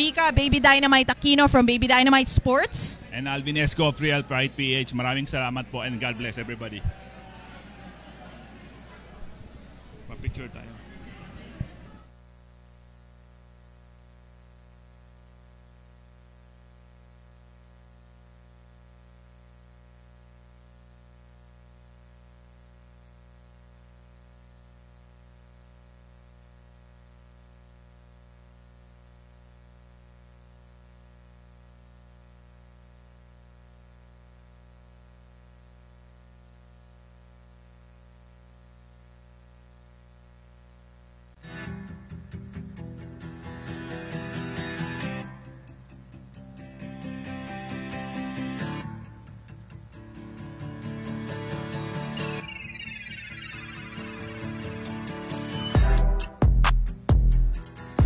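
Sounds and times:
electrical mains hum: 0.0 - 58.0
music: 41.4 - 58.0.

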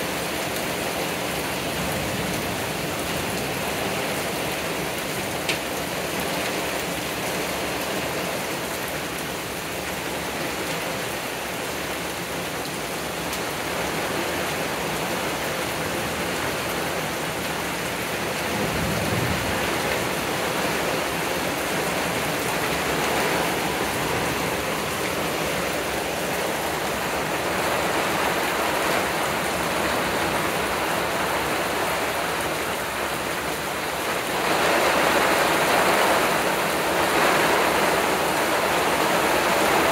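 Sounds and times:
heavy rain pouring on trees: 0.0 - 39.9
low thunder rumble: 18.4 - 32.5.

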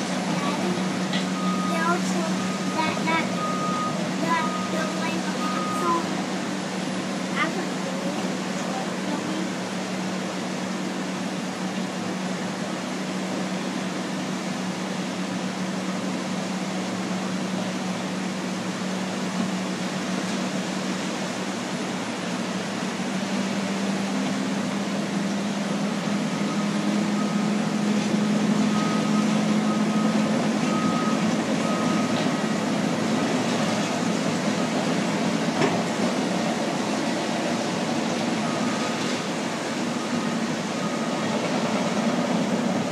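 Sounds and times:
bulldozer diesel engine drone: 0.0 - 42.9
faint backup alarm beeping: 0.5 - 6.1, 26.3 - 32.8, 38.4 - 39.2, 39.9 - 41.8.

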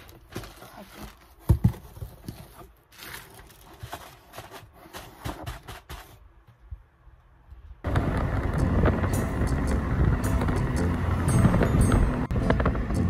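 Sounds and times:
cardboard box scraping and rustling: 0.0 - 6.2.

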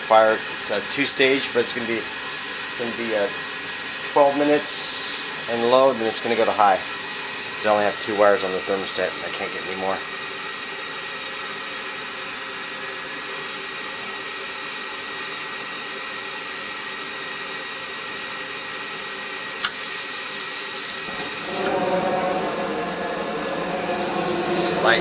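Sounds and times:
furnace blower running: 0.0 - 25.0
sharp click: 19.6 - 19.9
gas hiss: 19.6 - 25.0.

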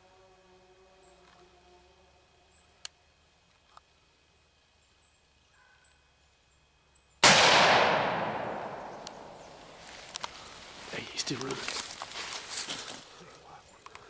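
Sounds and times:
rifle shot with echo: 7.2 - 9.8.

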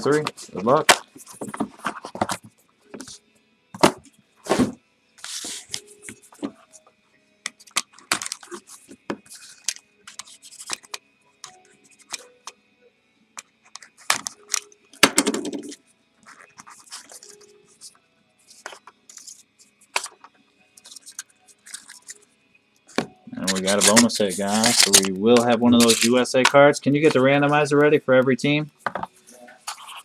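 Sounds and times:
cardboard and packaging rustling: 0.0 - 3.2, 3.8 - 6.8, 7.6 - 10.9, 13.8 - 17.9, 23.0 - 27.6.

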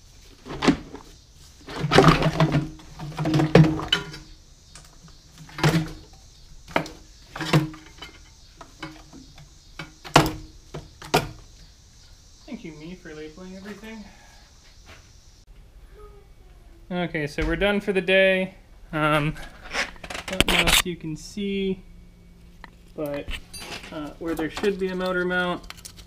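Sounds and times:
metal parts knocking and clattering: 1.7 - 4.2, 6.8 - 10.4.

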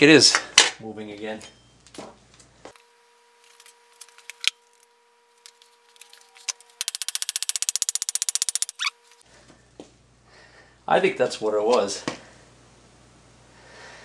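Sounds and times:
faint steady hum: 0.0 - 14.0
rapid sharp mechanical clicks: 6.8 - 8.8.

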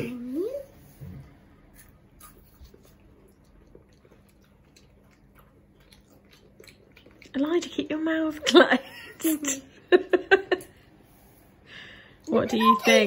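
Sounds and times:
chewing and crunching wafer: 1.6 - 8.0.

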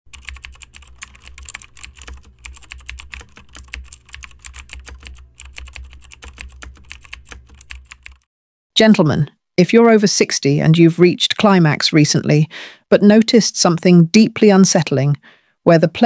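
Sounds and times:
computer keyboard typing: 0.1 - 8.3.

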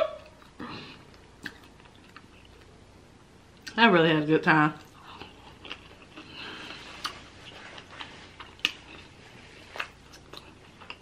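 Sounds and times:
close chewing with wet mouth sounds: 4.8 - 11.0.

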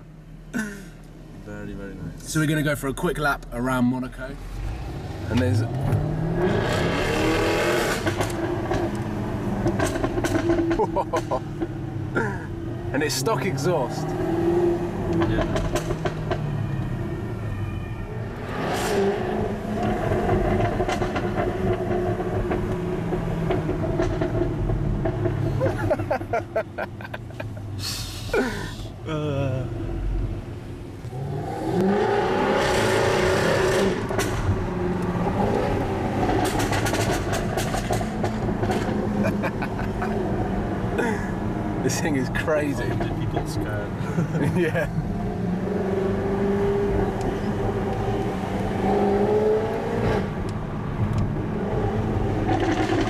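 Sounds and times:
car engine revving: 3.7 - 12.2, 12.9 - 16.4, 18.4 - 27.7, 29.4 - 53.0
exhaust crackles and bangs: 9.6 - 11.8, 15.2 - 16.4, 19.8 - 26.8, 36.2 - 39.1.

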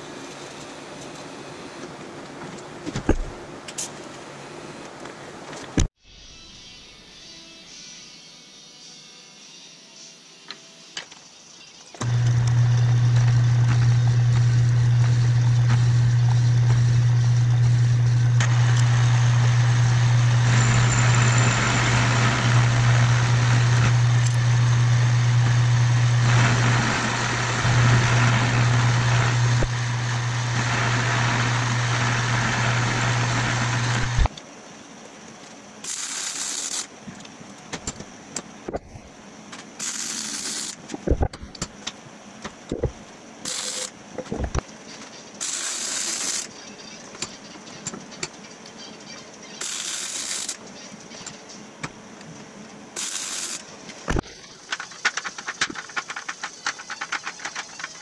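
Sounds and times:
lathe cutting tool: 12.0 - 34.3
lathe motor hum: 12.0 - 34.3.

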